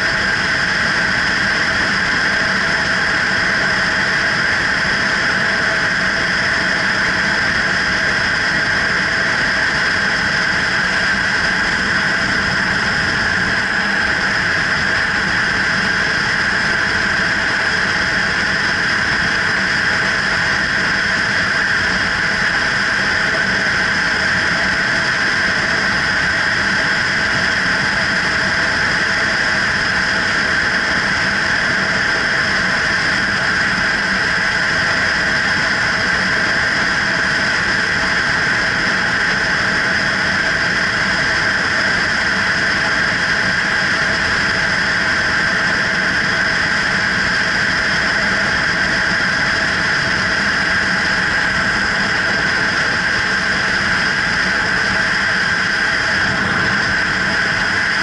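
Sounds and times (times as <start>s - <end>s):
rush of air and road noise: 46.1s - 58.0s.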